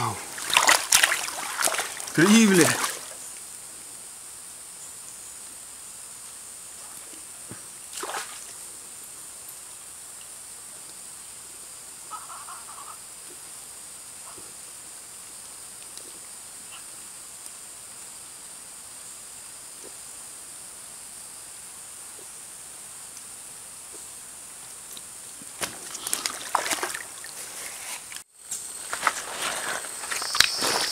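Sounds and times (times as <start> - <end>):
stream hiss: 0.0 - 30.9
rustling: 25.4 - 30.9.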